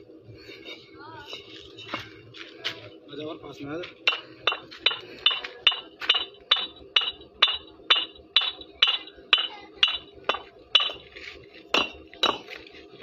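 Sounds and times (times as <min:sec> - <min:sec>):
bricks clinking together: 0:04.1 - 0:11.1, 0:11.7 - 0:12.6.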